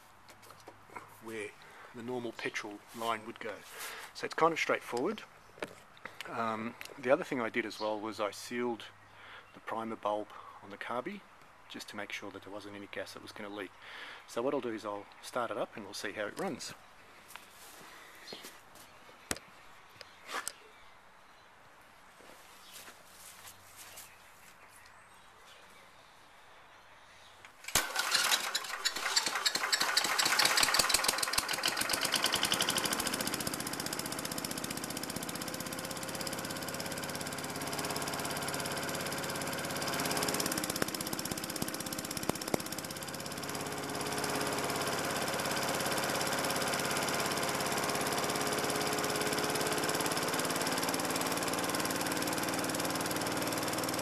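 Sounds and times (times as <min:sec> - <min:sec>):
lawn mower engine starting and running: 0:02.4 - 0:05.2, 0:27.5 - 0:54.0.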